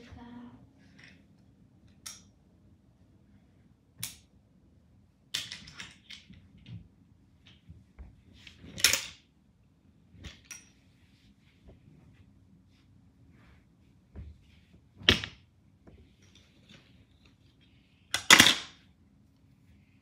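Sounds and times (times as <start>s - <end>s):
clothes rustling clatter: 5.7s - 9.2s, 10.1s - 18.0s.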